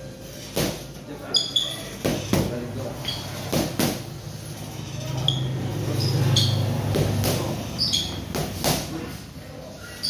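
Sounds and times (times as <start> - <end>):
boxing gloves hitting mitts: 0.4 - 0.9, 2.0 - 2.6, 3.4 - 4.1, 6.8 - 7.6, 8.2 - 9.1
sneakers squeaking on mat: 0.7 - 3.8, 5.0 - 8.8.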